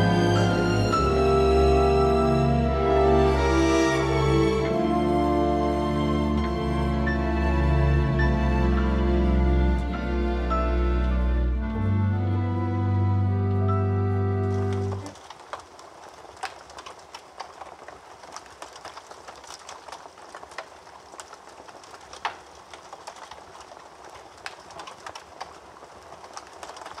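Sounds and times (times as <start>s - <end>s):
held music chord: 0.0s - 15.1s
fire crackling and popping: 0.0s - 27.0s.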